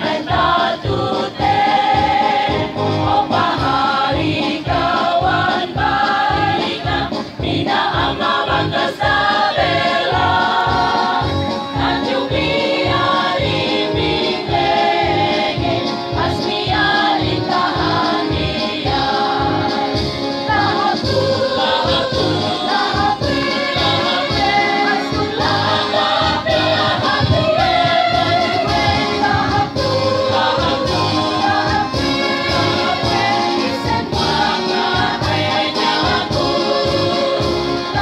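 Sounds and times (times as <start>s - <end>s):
large choir singing: 0.0s - 38.0s
steady low beat: 20.5s - 38.0s.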